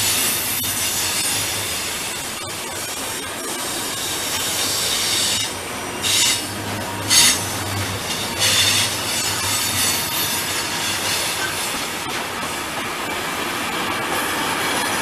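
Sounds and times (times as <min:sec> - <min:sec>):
train wagons rolling on rails: 0:00.0 - 0:15.0.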